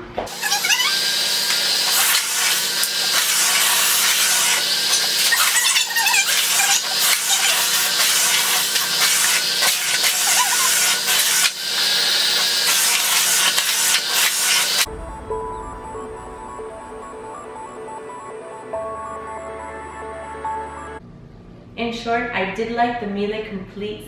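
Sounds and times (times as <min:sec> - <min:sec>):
vacuum cleaner running: 0:00.0 - 0:14.9.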